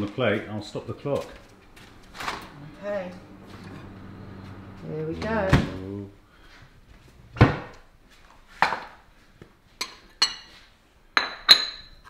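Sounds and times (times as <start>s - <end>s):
crockery and cutlery knocking and clinking: 11.2s - 12.0s.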